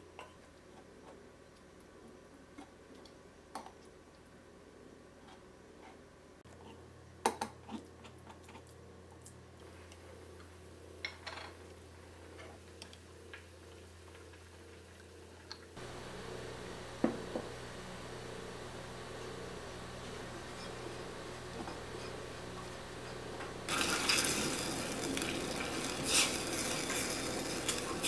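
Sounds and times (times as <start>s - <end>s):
low steady hum: 0.0s - 28.0s.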